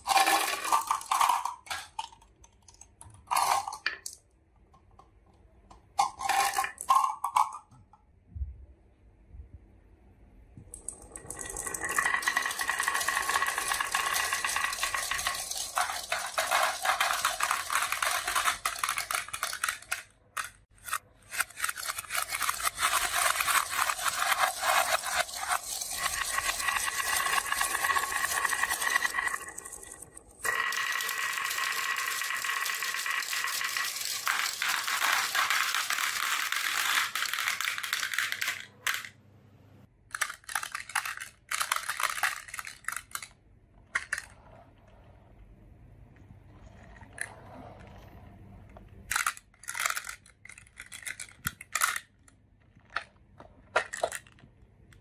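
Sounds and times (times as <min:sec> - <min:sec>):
marbles rattling down wooden run: 0:00.0 - 0:02.2, 0:10.8 - 0:20.6, 0:21.5 - 0:39.1.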